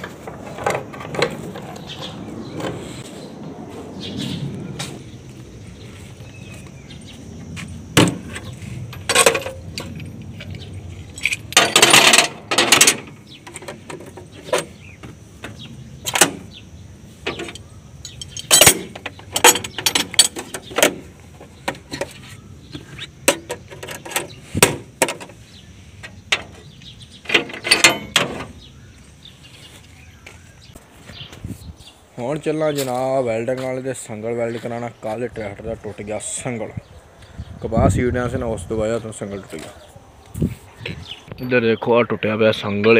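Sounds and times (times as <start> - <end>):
metal tools clinking on steel: 7.7 - 15.0, 17.2 - 25.4, 26.0 - 28.7, 41.3 - 41.8.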